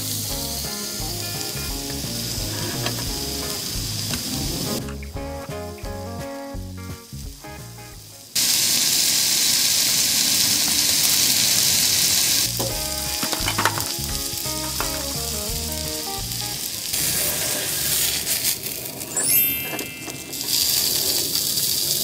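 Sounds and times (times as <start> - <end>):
steak sizzling on griddle: 0.0 - 5.3, 6.1 - 22.0
background music: 0.0 - 8.4, 12.5 - 16.8.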